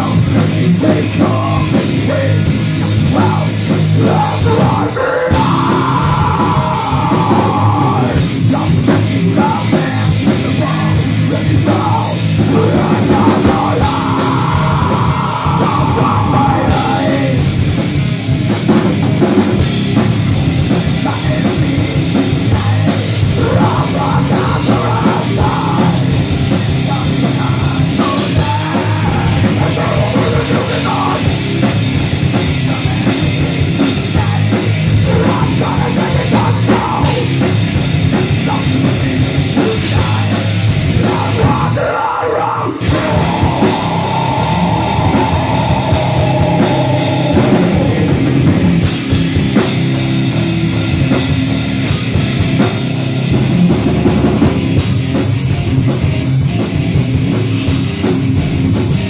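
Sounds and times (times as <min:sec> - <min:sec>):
person singing: 0:00.0 - 0:17.6, 0:20.8 - 0:31.4, 0:32.4 - 0:37.5, 0:38.1 - 0:48.2
bass guitar: 0:00.0 - 0:59.0
distorted electric guitar: 0:00.0 - 0:59.0
drum kit: 0:00.0 - 0:59.0.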